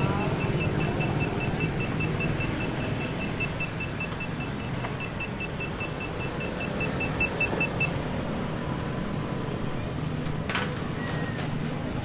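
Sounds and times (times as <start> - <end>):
rapid high electronic beeping: 0.0 - 7.9
city street traffic: 0.0 - 12.0.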